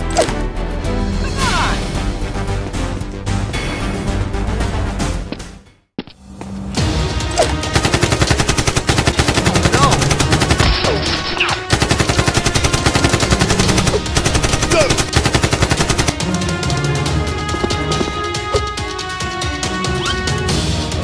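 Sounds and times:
rapid automatic gunfire: 7.6 - 16.2.

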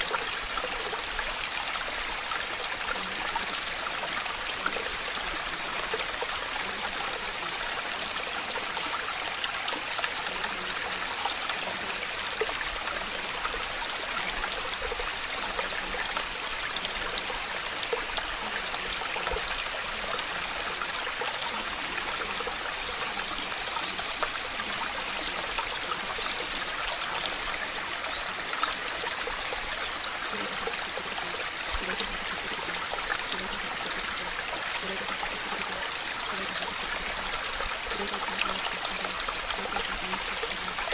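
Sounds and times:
water hissing with dripping ticks: 0.0 - 40.9.

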